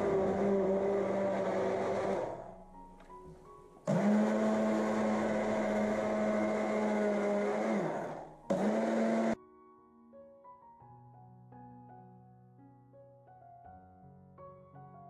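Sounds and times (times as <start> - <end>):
immersion blender motor whine: 0.0 - 2.6, 3.8 - 9.4.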